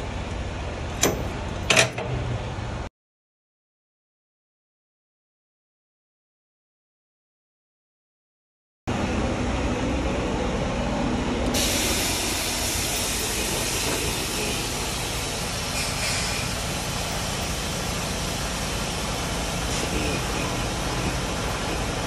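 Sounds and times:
diesel engine idling: 0.0s - 2.9s, 8.9s - 22.0s
air suspension hissing: 11.5s - 22.0s.

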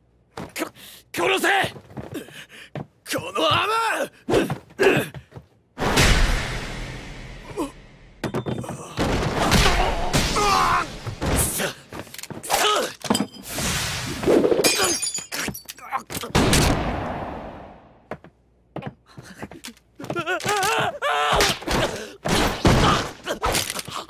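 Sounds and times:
loud crash: 5.8s - 8.2s
men grunting: 20.0s - 24.0s.

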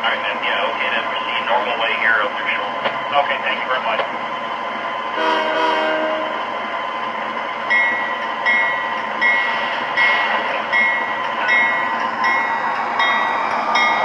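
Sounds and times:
wheels rumbling on track: 0.0s - 14.0s
model locomotive bell ringing: 7.7s - 14.0s.

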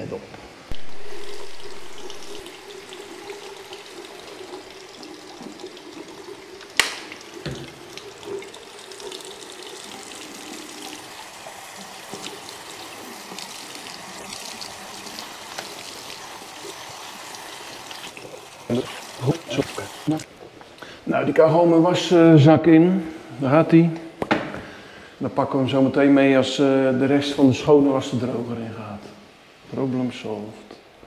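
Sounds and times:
tap running into washbasin: 0.7s - 19.6s
sock rinsed by hand: 0.7s - 20.2s.

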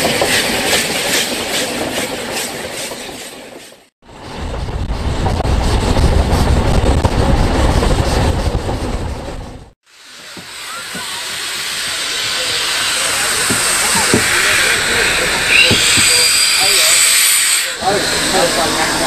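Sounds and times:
train rumbling on rails: 0.0s - 19.0s
steam locomotive hissing steam: 9.8s - 19.0s.

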